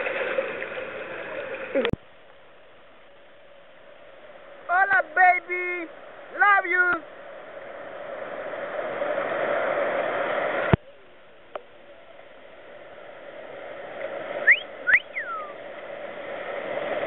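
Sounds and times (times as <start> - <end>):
rushing whitewater rapids: 3.8 - 10.8, 12.2 - 17.0
short whistle-like calls: 14.4 - 15.6.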